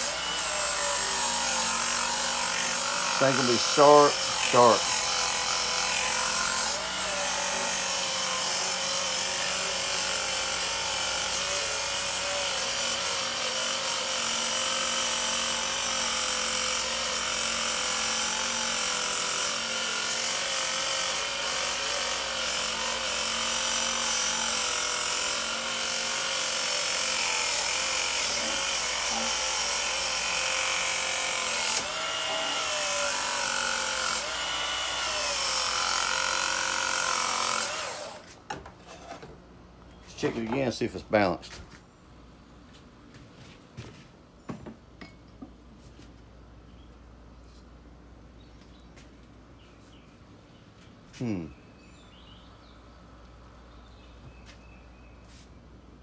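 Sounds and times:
belt sharpener grinding metal: 0:00.0 - 0:38.2.

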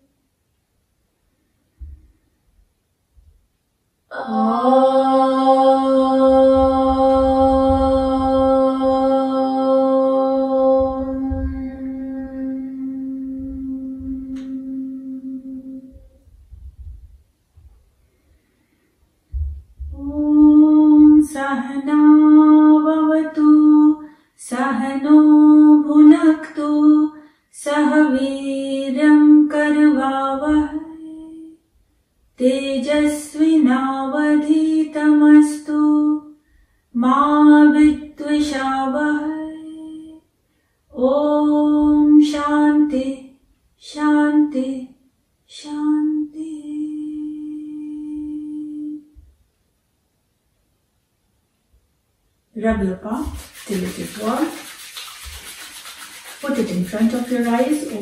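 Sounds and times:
woman chanting: 0:04.1 - 0:16.2, 0:19.9 - 0:31.6, 0:32.4 - 0:36.3, 0:37.0 - 0:40.2, 0:40.9 - 0:49.2, 0:52.6 - 0:58.0.

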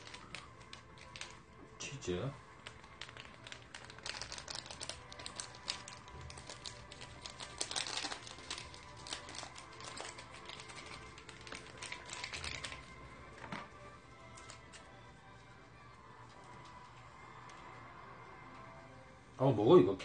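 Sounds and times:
plastic packets crinkling: 0:00.0 - 0:01.6, 0:02.4 - 0:15.0.

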